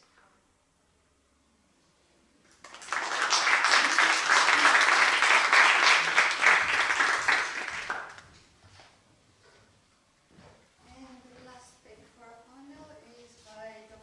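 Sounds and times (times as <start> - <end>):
audience applauding: 2.6 - 8.3.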